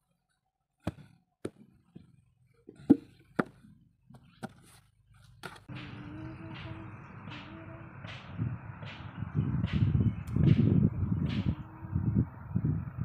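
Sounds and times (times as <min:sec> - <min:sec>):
clay slapping into brick mould: 0:00.8 - 0:01.6.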